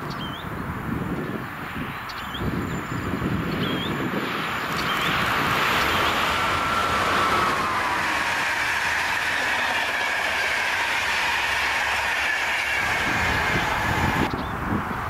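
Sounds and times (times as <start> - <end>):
train wheels rolling on rails: 1.1 - 15.0.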